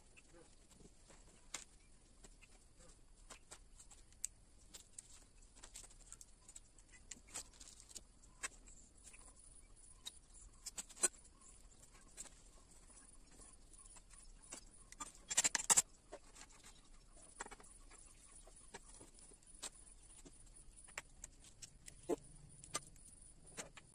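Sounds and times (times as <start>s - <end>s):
clicks of tools and engine parts: 14.5s - 16.8s, 22.6s - 23.9s.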